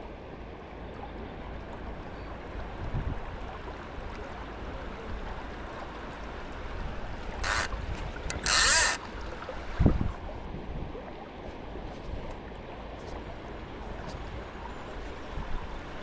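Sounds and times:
river water rushing: 0.1 - 16.0
wind on microphone: 2.6 - 3.5, 6.7 - 12.4.

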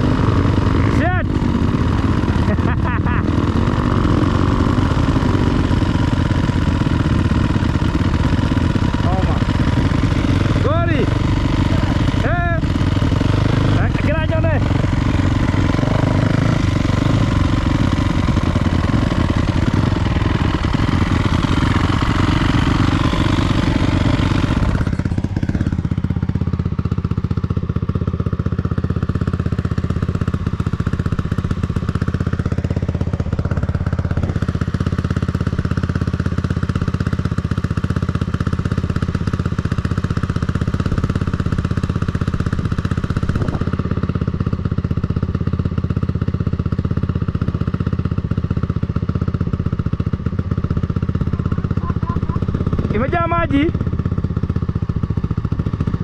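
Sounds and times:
dirt bike engine running: 0.0 - 56.0.

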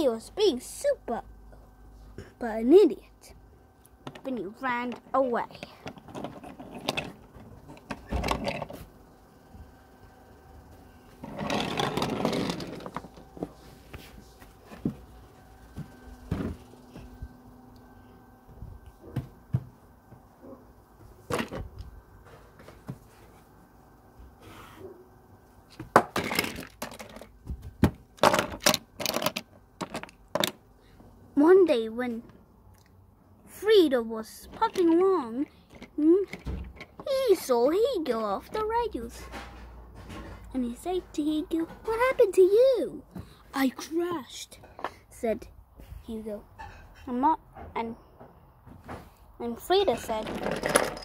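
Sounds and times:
wooden toy train on track: 11.2 - 13.1, 50.0 - 51.0.

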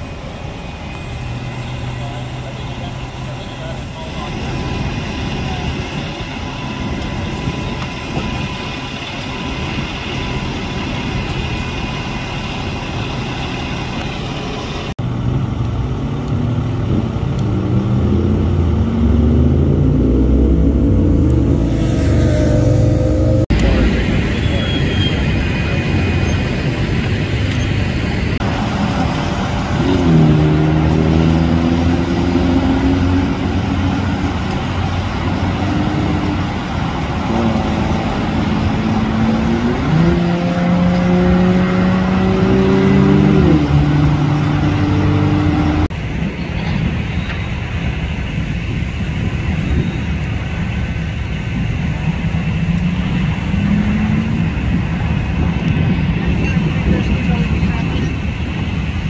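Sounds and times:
diesel engine revving: 16.2 - 45.9.

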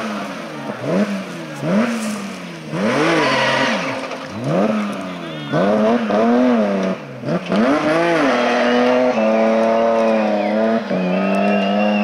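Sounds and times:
rally car engine at high revs: 0.0 - 12.0
tyre squeal: 3.1 - 4.1.

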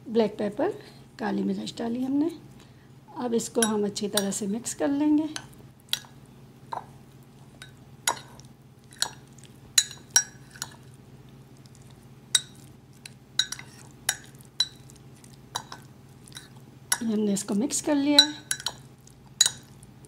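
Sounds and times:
metal spoon clinking in bowl: 9.8 - 10.8, 13.4 - 14.8, 18.1 - 18.8, 19.4 - 19.7.

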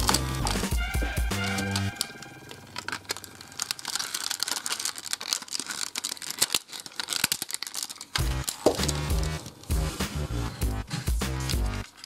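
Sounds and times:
music: 0.0 - 2.9, 8.2 - 12.0
plastic toy parts clicking: 0.0 - 9.8, 10.9 - 12.0.

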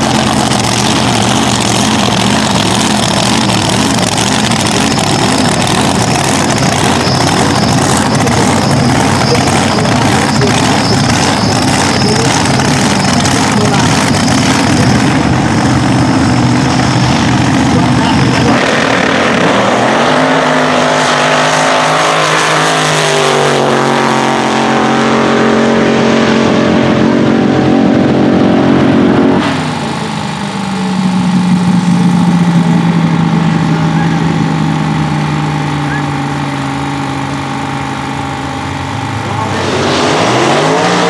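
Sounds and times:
engine idling: 0.0 - 18.6, 27.5 - 39.8
dragster engine at full throttle: 0.0 - 41.0.

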